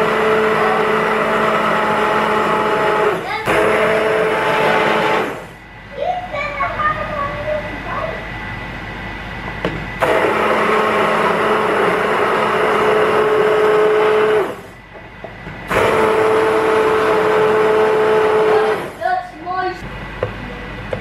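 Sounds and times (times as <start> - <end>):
hand blender motor whine: 0.0 - 5.6, 10.0 - 14.8, 15.7 - 19.0.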